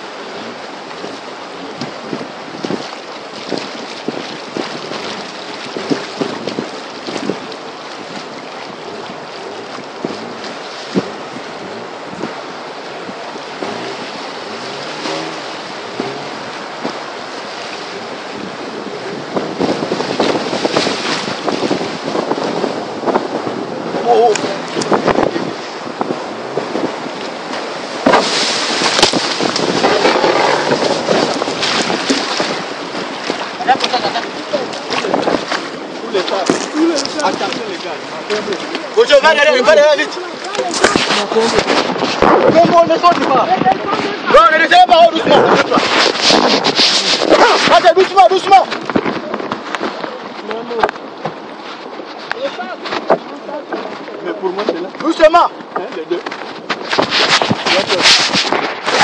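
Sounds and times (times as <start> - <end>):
rushing river rapids: 0.0 - 59.0
water slapping against boat: 0.0 - 59.0
wind buffeting microphone: 0.0 - 59.0
handling bumps on microphone: 55.6 - 59.0.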